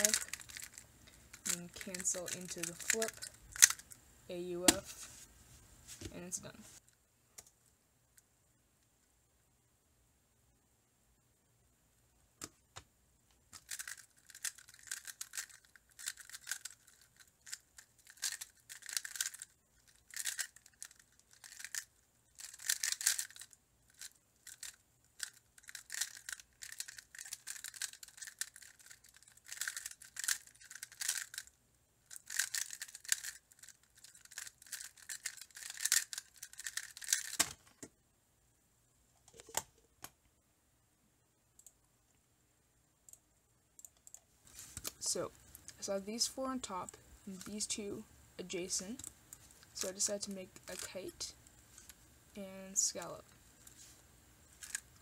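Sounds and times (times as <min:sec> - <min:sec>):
plastic puzzle clicking: 0:00.0 - 0:03.9, 0:13.5 - 0:31.5, 0:32.1 - 0:37.6, 0:54.6 - 0:55.0.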